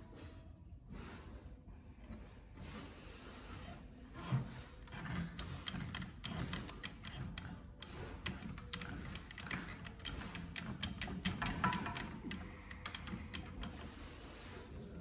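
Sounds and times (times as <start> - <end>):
small clicks from handling metal parts: 4.8 - 13.9.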